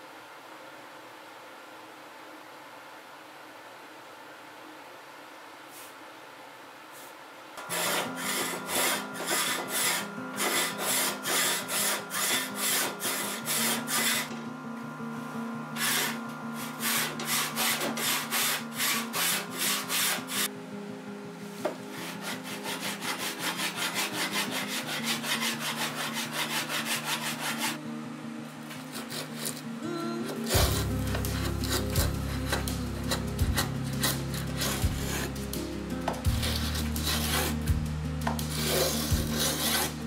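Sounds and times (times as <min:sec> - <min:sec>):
hand saw cutting wood: 0:07.6 - 0:14.4, 0:15.8 - 0:20.5, 0:21.9 - 0:27.8, 0:28.8 - 0:29.6, 0:30.3 - 0:40.0
background music with bass: 0:29.8 - 0:40.0.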